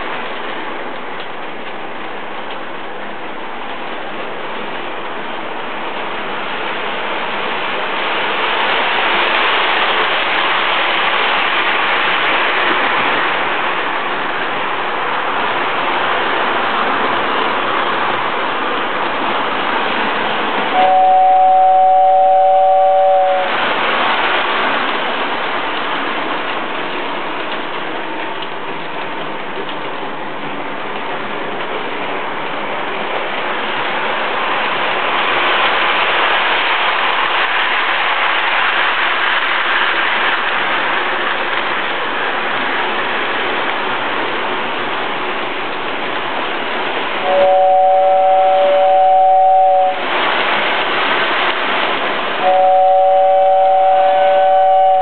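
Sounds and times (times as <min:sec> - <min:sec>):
two-note train horn: 0:20.7 - 0:23.6, 0:47.2 - 0:50.0, 0:52.4 - 0:55.0.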